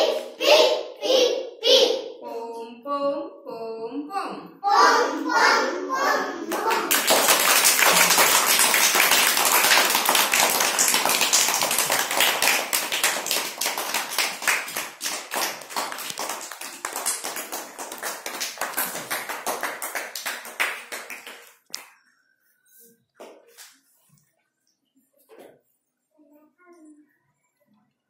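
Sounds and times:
children clapping: 0:06.4 - 0:22.0.

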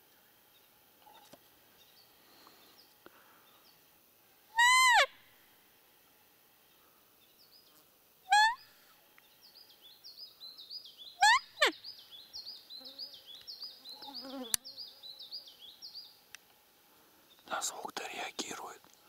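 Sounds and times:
insect buzzing: 0:00.5 - 0:18.2
deer call squeaking: 0:04.6 - 0:05.1, 0:08.3 - 0:08.6, 0:11.2 - 0:11.8.

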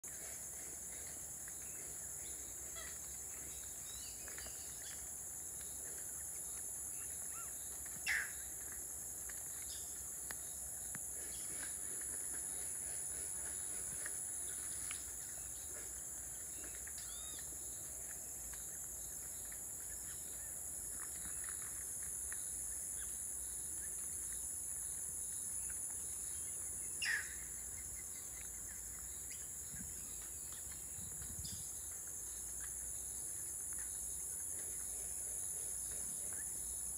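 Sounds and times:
high-pitched insect chorus: 0:00.0 - 0:36.9
faint bird chirps: 0:00.9 - 0:08.5, 0:12.4 - 0:17.9, 0:25.6 - 0:35.2
loud bird calls: 0:06.9 - 0:08.4, 0:27.0 - 0:27.5.

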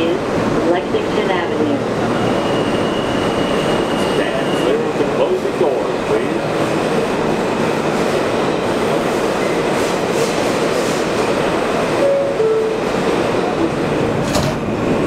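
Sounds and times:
subway train rumbling in tunnel: 0:00.0 - 0:15.0
wheels squealing on rails: 0:01.9 - 0:05.0.

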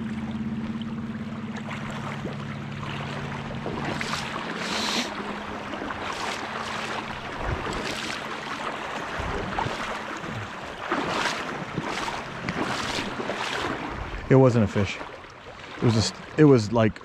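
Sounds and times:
legs wading through water: 0:00.0 - 0:17.0.

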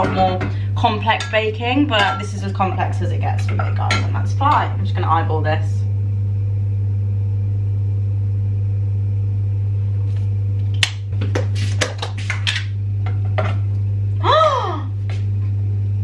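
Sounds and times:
kitchen utensils clattering: 0:00.0 - 0:02.4
low electrical hum: 0:00.0 - 0:16.0
person exclaiming in surprise: 0:14.2 - 0:14.9.

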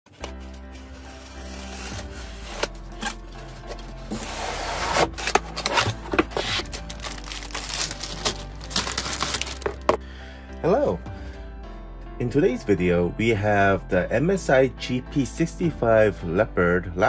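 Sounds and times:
foam packing rubbing: 0:00.2 - 0:09.8
box cutter slitting cardboard: 0:01.2 - 0:09.5.

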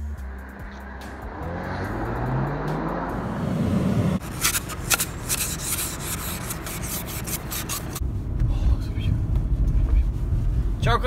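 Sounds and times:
car engine driving off: 0:00.0 - 0:04.8
ice scraper scratching windshield: 0:04.2 - 0:08.0.

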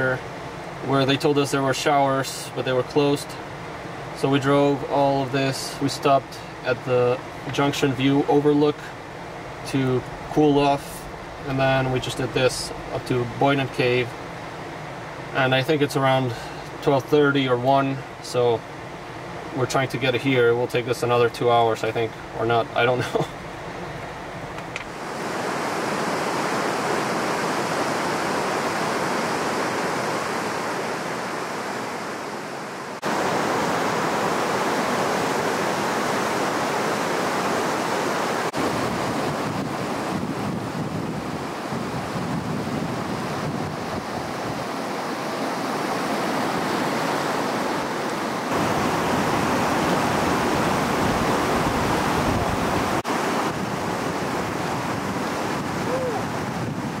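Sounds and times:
river rushing over rocks: 0:24.7 - 0:40.1, 0:42.9 - 0:57.0.

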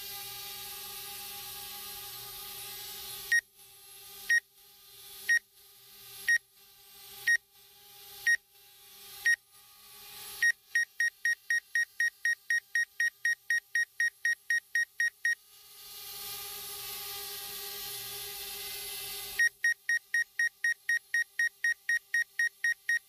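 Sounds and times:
sharp high warning beeps: 0:10.4 - 0:15.4, 0:19.4 - 0:23.0.

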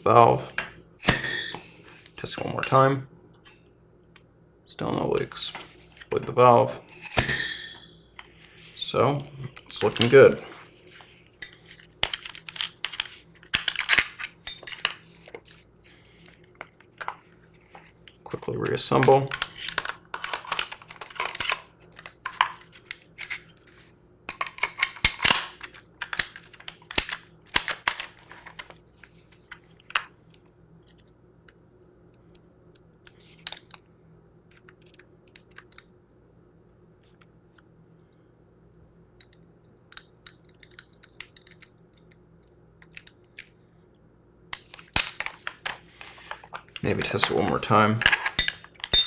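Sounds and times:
plastic parts clacking and clicking: 0:18.9 - 0:23.5, 0:44.6 - 0:49.0.

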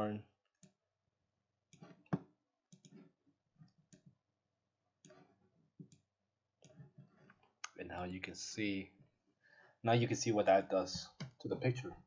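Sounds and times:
computer mouse clicking: 0:02.7 - 0:03.0.

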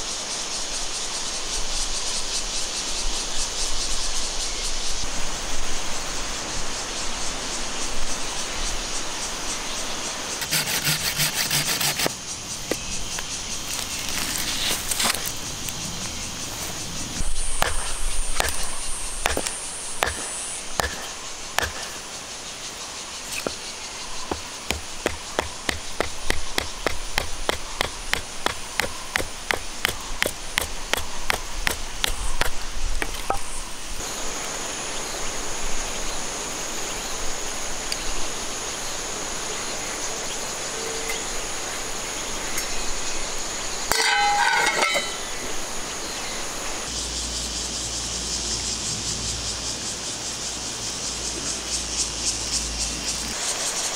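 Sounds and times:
knife batoned through wood: 0:10.4 - 0:12.1, 0:17.6 - 0:22.0, 0:24.2 - 0:33.5.

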